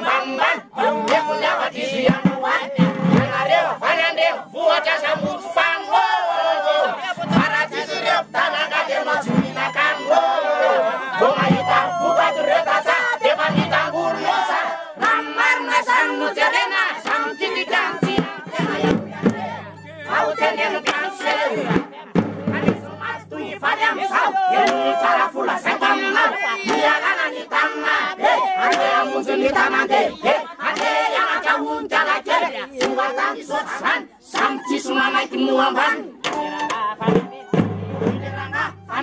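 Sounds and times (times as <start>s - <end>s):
group singing loudly: 0.0s - 39.0s
bass drum: 2.0s - 3.6s, 7.2s - 10.0s, 11.2s - 12.3s, 13.3s - 14.4s, 18.0s - 20.8s, 21.7s - 23.9s, 37.1s - 39.0s.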